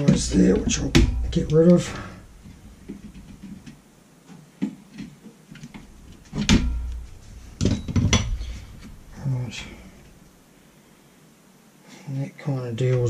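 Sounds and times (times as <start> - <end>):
loud knocks: 0.0 - 3.6, 5.8 - 9.2.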